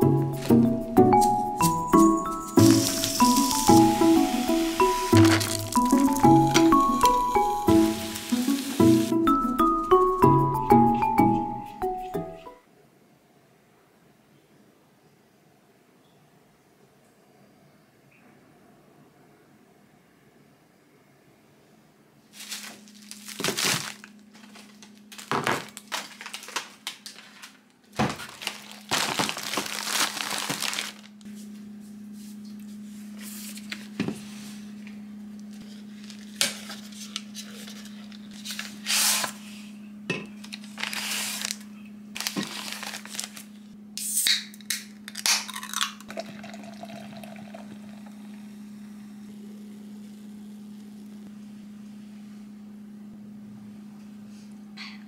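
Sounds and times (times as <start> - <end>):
plastic packaging crinkling and tearing: 2.4 - 8.6, 22.4 - 31.2, 35.6 - 39.4, 40.4 - 43.8
steady low hum: 44.8 - 55.0
cider pouring into glass: 45.5 - 48.5.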